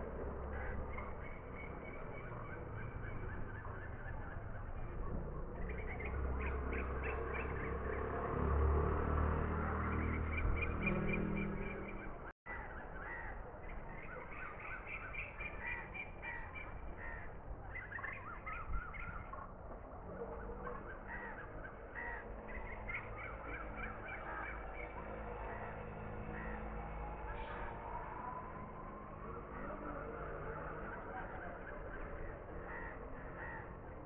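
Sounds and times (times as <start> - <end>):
crows cawing: 12.5 - 13.5, 14.4 - 18.6, 20.5 - 28.4, 30.6 - 34.0.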